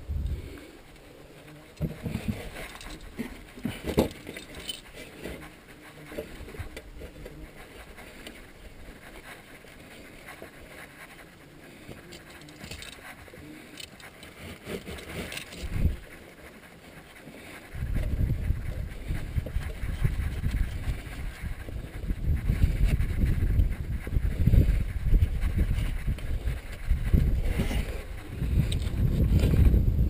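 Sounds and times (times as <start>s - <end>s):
strap scraping on wheel rim: 0.8s - 29.8s
chain clinking and rattling: 1.8s - 5.4s, 11.9s - 16.1s.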